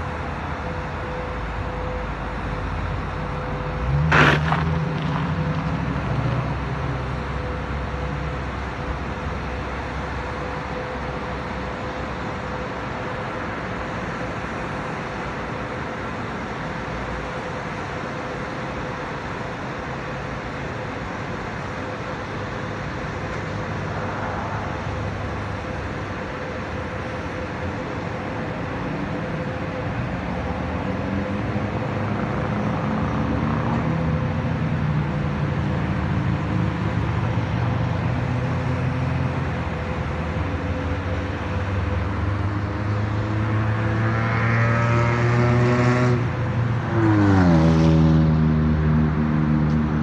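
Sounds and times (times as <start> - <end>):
road traffic: 0.0 - 50.0
vehicle accelerating and passing: 2.5 - 8.4, 26.7 - 50.0.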